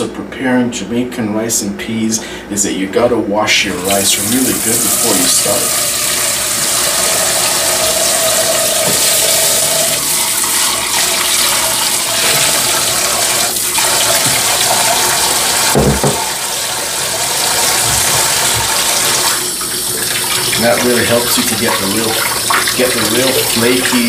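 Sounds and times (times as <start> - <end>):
rice poured into water: 3.9 - 15.1
tap water running into saucepan: 3.9 - 24.0
low thump: 15.8 - 16.2.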